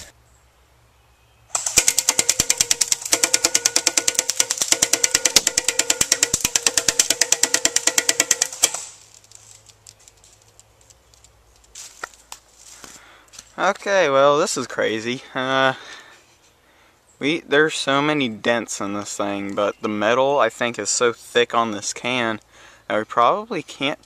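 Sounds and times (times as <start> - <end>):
airsoft gun firing full auto: 1.5 - 9.0.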